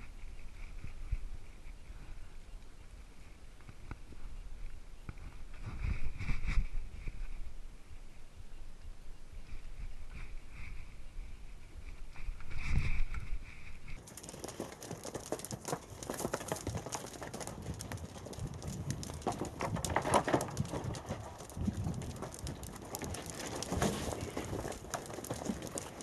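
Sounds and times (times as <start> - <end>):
reindeer hooves clattering: 11.9 - 26.0.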